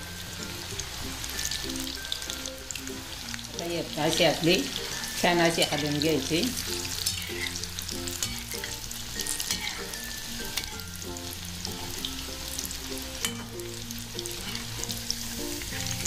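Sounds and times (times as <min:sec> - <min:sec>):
food deep-frying in oil: 0:00.0 - 0:16.0
skimmer stirring in oil: 0:03.6 - 0:11.0, 0:11.6 - 0:16.0.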